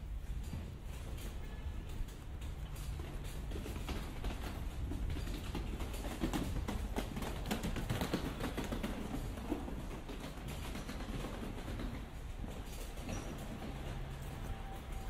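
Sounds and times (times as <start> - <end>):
suitcase wheels rattling on cobblestones: 0.0 - 15.0.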